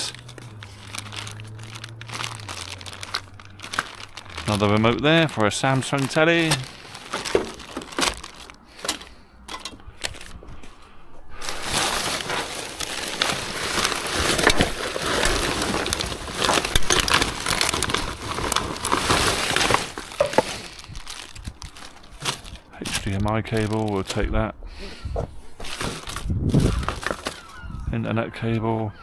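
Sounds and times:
rubbish rustling and crinkling: 0.0s - 24.4s, 25.0s - 27.9s.

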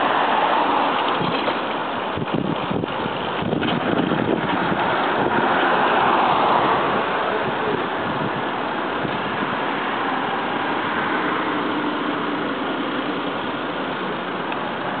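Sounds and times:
street traffic: 0.0s - 15.0s
wind on microphone: 1.1s - 9.8s.

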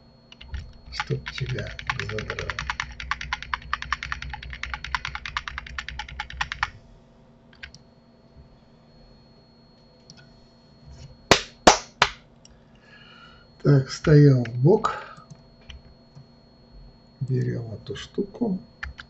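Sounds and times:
keyboard typing: 0.3s - 6.7s, 7.6s - 7.8s, 18.8s - 19.0s.

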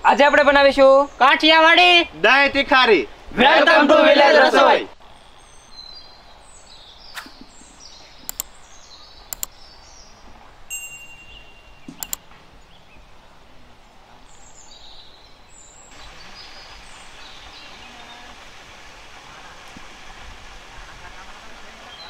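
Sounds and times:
birds chirping: 4.9s - 22.0s
double mouse clicks: 8.3s - 8.5s, 9.3s - 9.5s, 11.9s - 12.2s
bell-like ding: 10.7s - 11.8s.

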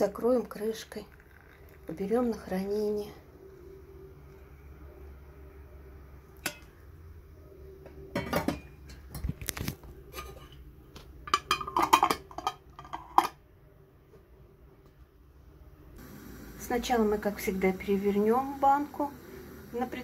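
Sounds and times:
metal lid clinking on glass jar: 11.3s - 13.4s.

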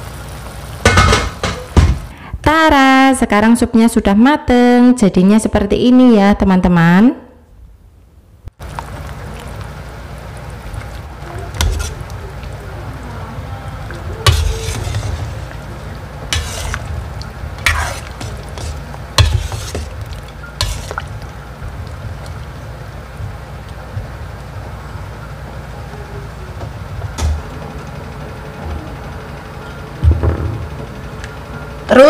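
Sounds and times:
steady low hum: 6.5s - 32.0s
metal ladle scraping a pot: 11.5s - 12.1s, 14.2s - 17.0s, 17.6s - 21.1s.

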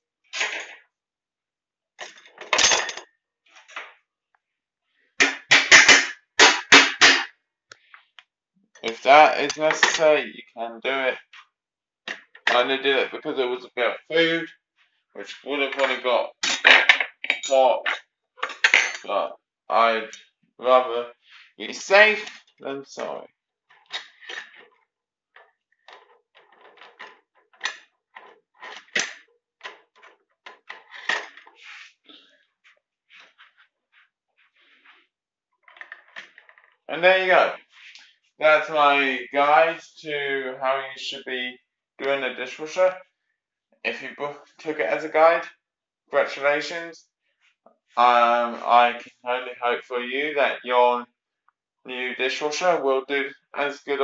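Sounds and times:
cutlery clattering into basket: 2.0s - 3.0s, 16.4s - 19.1s.

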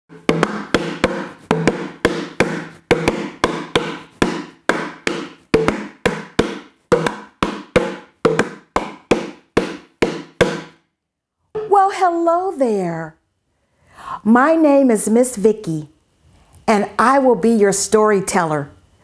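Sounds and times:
hand percussion strikes: 0.1s - 10.8s, 11.6s - 11.8s.

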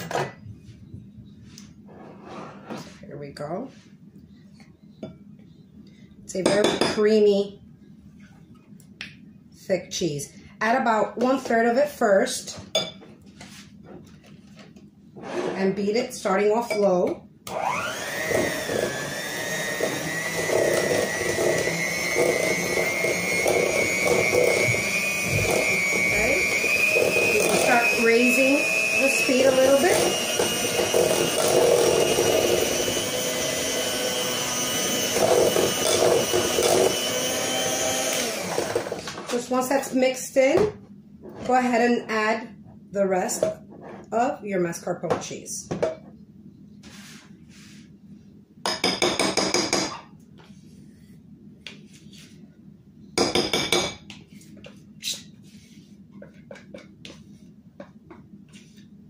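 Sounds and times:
electric hand mixer running: 17.5s - 39.2s.

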